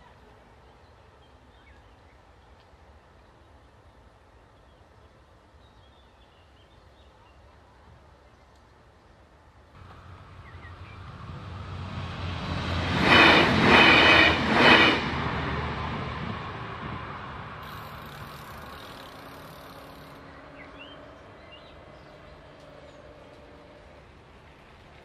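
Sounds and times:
bright train whine: 0:09.8 - 0:24.9
train passing: 0:09.8 - 0:25.0.

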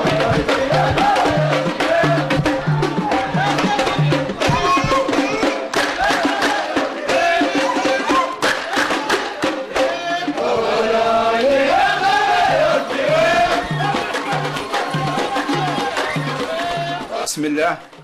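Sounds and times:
rhythmic hand clapping: 0:00.0 - 0:17.7
group singing a chant: 0:00.0 - 0:17.8
drum beats: 0:00.0 - 0:18.0.

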